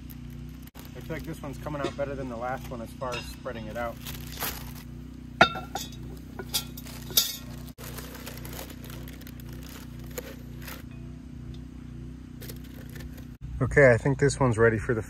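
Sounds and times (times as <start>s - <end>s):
low hum: 0.0s - 15.0s
cast-iron pot clinking and knocking: 3.1s - 3.7s, 5.4s - 7.5s.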